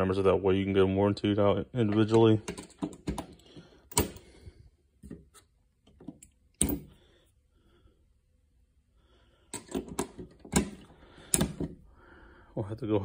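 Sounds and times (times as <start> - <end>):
metal sockets clicking: 1.9 - 4.2.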